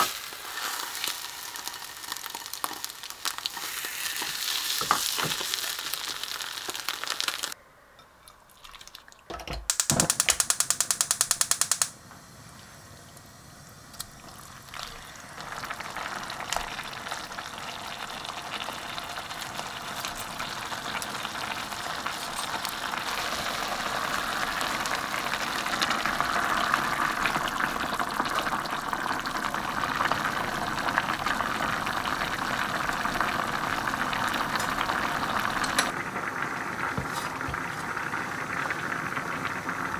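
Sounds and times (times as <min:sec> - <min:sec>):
egg roll sizzling in a frying pan: 0:00.0 - 0:07.6, 0:14.3 - 0:39.9
stew simmering and bubbling: 0:00.0 - 0:09.7, 0:12.4 - 0:39.9
rapid clicking: 0:09.7 - 0:12.0.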